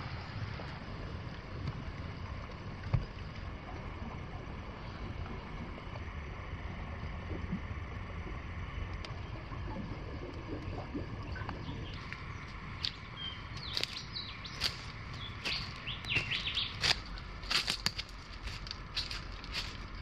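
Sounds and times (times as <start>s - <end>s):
small birds chirping: 11.3s - 20.0s
footsteps on dry leaves: 12.8s - 20.0s.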